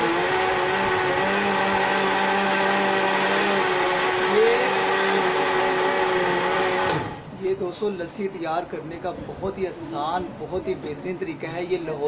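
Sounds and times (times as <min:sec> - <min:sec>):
blender running: 0:00.0 - 0:07.3.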